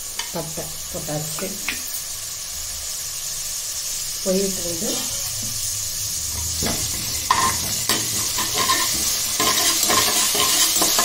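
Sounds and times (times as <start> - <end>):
spices sizzling in hot oil: 0.0 - 11.0
spatula scraping and tapping pan: 6.4 - 11.0.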